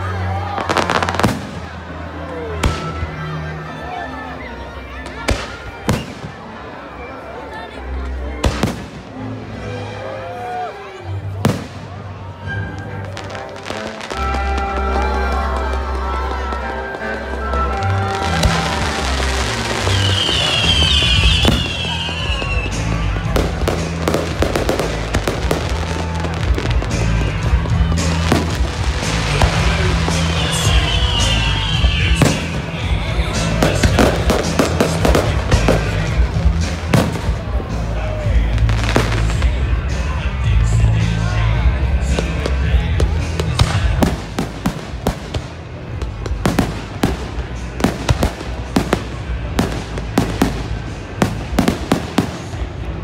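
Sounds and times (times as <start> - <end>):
fireworks bangs and crackles: 0.0 - 3.6, 4.9 - 7.2, 8.0 - 9.7, 10.5 - 53.0
music with steady bass: 12.4 - 53.0.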